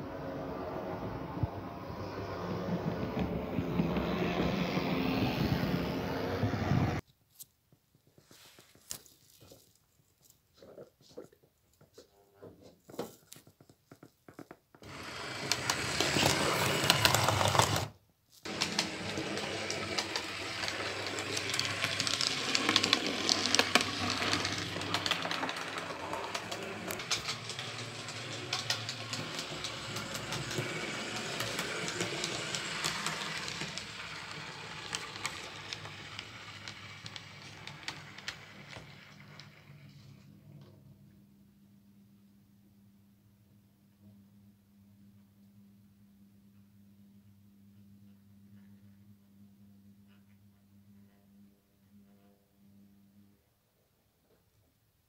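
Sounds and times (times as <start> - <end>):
model train motor whirring: 14.8 - 17.9, 18.5 - 39.8
wheels clicking on rails: 14.8 - 17.9, 18.5 - 40.1.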